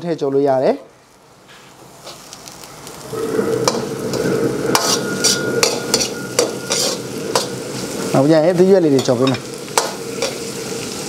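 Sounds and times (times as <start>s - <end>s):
food sizzling in wok: 0.0s - 11.0s
ladle scraping wok: 1.4s - 8.2s, 9.0s - 11.0s.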